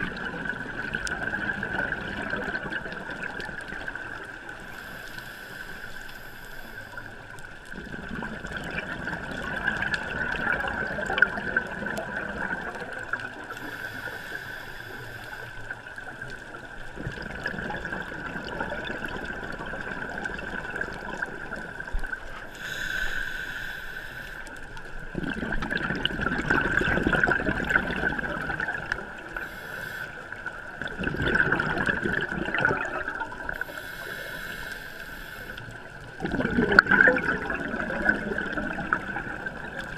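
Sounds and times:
gurgling exhaust bubbles: 0:00.0 - 0:04.0, 0:07.8 - 0:13.3, 0:16.9 - 0:22.2, 0:25.1 - 0:29.2, 0:30.7 - 0:33.6, 0:36.1 - 0:39.9
regulator inhalation hiss: 0:04.7 - 0:07.2, 0:13.5 - 0:15.8, 0:22.5 - 0:24.6, 0:29.4 - 0:30.4, 0:33.6 - 0:35.9.

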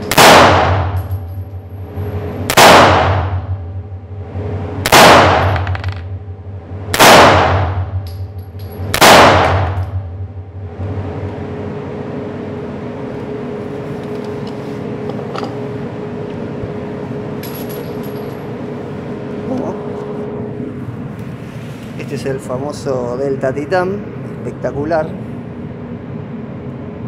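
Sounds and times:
steady hum: 0:00.0 - 0:27.0
pistol shots echoing indoors: 0:00.1 - 0:01.0, 0:02.5 - 0:03.5, 0:04.8 - 0:05.9, 0:06.9 - 0:08.0, 0:08.9 - 0:09.8.

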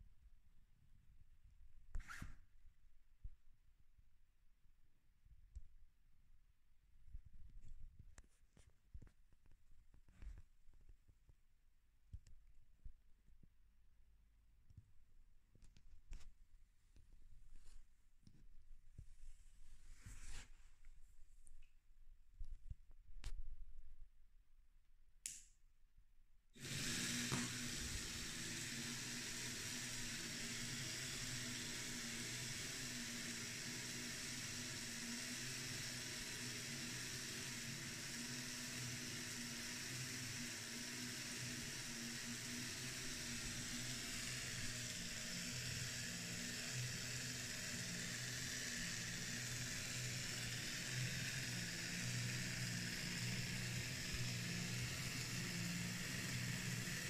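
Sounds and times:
electric motor humming: 0:26.6 - 0:57.0.

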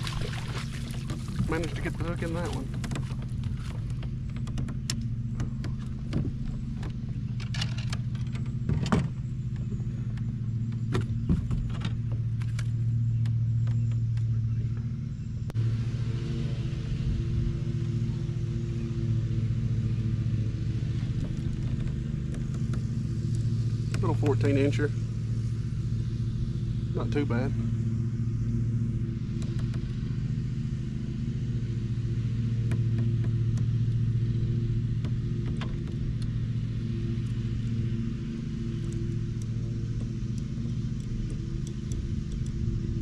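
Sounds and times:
motor droning: 0:00.0 - 0:43.0
sharp clicks and knocks: 0:01.0 - 0:14.4.

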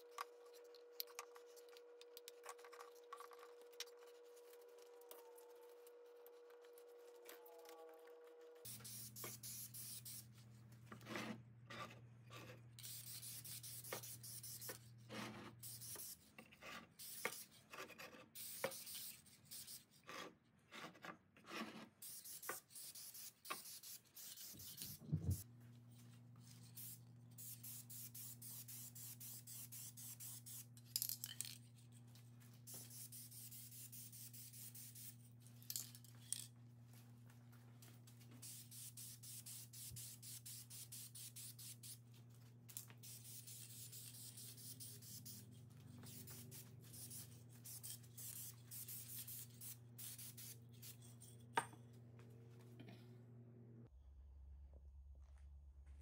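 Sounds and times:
aerosol spray can hissing: 0:43.0 - 0:45.4, 0:46.1 - 0:50.6.

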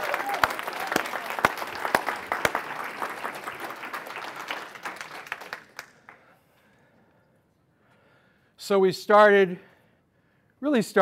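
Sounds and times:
people applauding: 0:00.0 - 0:06.3.

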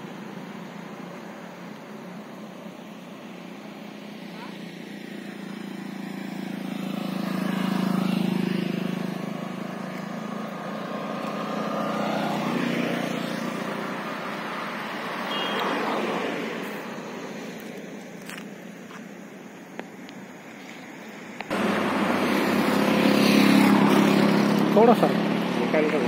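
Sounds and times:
vehicles passing on road: 0:00.0 - 0:26.0.

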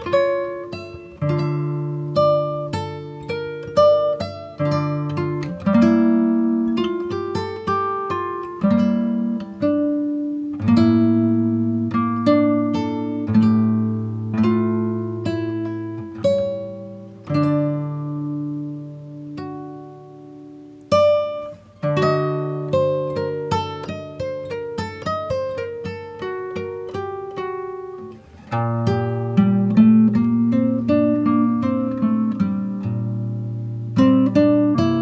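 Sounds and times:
acoustic guitar picking: 0:00.0 - 0:35.0.

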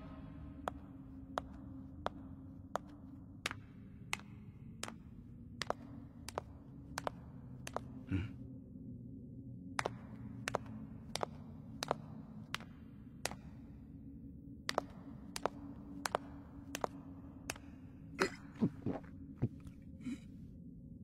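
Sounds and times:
low steady drone: 0:00.0 - 0:21.0
cartoon sandal footsteps: 0:14.7 - 0:20.2.

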